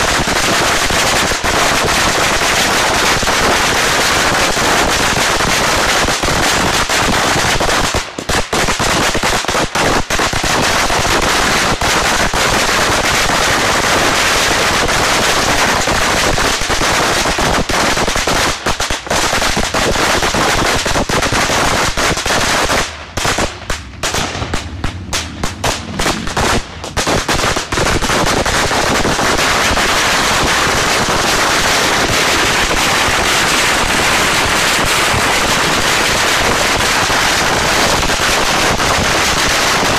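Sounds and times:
firecrackers going off: 0:00.0 - 0:39.9.

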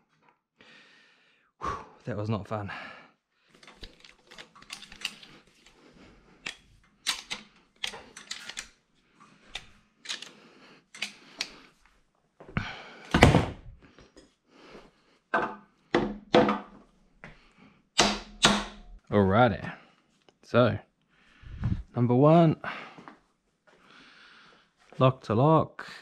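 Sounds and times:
metal parts clicking and knocking: 0:03.5 - 0:05.8, 0:06.4 - 0:08.8, 0:09.4 - 0:11.6.

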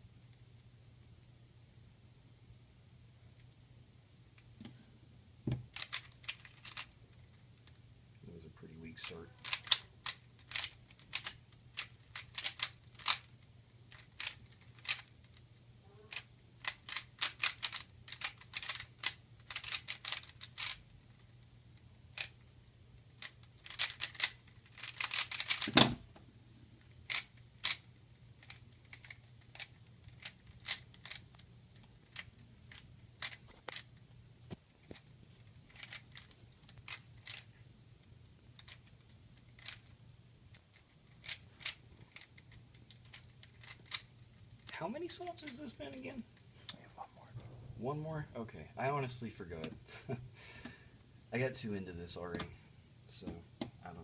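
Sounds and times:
faint low hum: 0:00.0 - 0:54.0
puzzle cube clicking: 0:05.7 - 0:07.0, 0:09.1 - 0:15.4, 0:16.1 - 0:21.4, 0:22.1 - 0:22.4, 0:23.0 - 0:26.0, 0:27.0 - 0:34.0, 0:35.7 - 0:37.5, 0:38.6 - 0:46.0.

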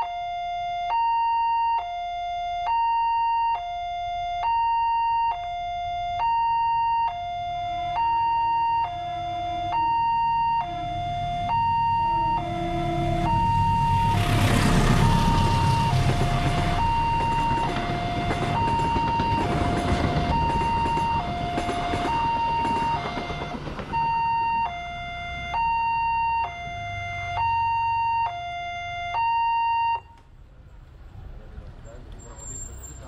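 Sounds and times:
level crossing siren: 0:00.0 - 0:30.2
passenger train passing: 0:10.7 - 0:25.6.

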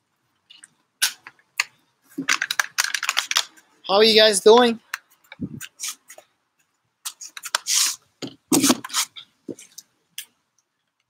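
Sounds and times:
device handling clicks and rustles: 0:00.4 - 0:03.7, 0:04.8 - 0:11.0
brief hiss: 0:07.6 - 0:09.1.

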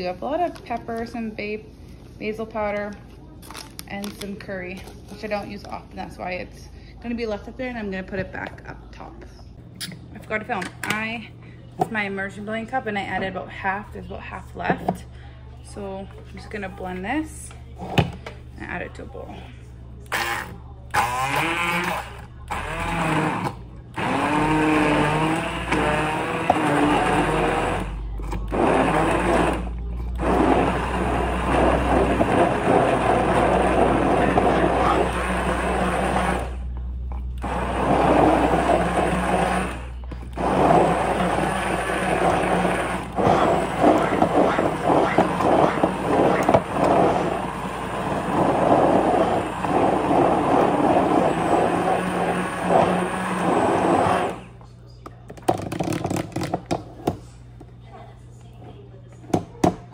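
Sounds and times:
immersion blender running: 0:20.1 - 0:54.6.

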